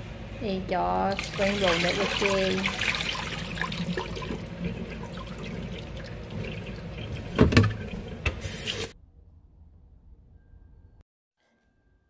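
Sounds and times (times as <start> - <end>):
water splashing into a pot: 1.1 - 8.9.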